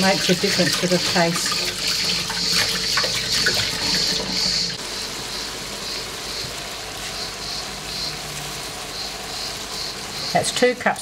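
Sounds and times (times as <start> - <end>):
tap water running onto rice: 0.0 - 4.9
frying pan sizzle: 0.0 - 11.0.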